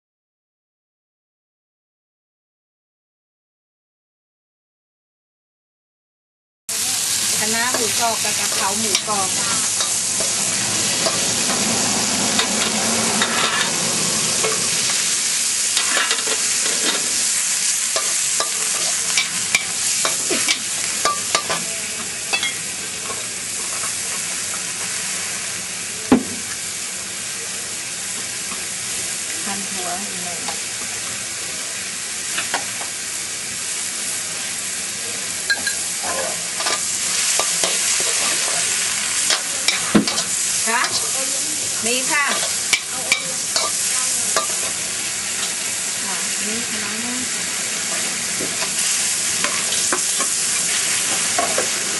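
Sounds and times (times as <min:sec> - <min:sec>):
food sizzling in hot oil: 0:06.7 - 0:51.9
utensil clinking against wok: 0:18.0 - 0:21.6, 0:22.3 - 0:24.0, 0:42.3 - 0:44.8.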